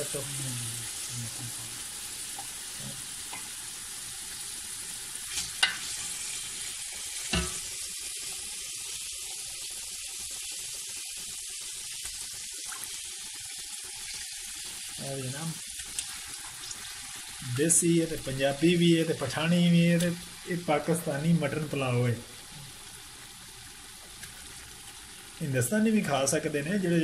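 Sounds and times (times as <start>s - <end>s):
meat sizzling in hot oil: 0.0s - 27.0s
metal ladle knocking pot: 7.4s - 7.6s.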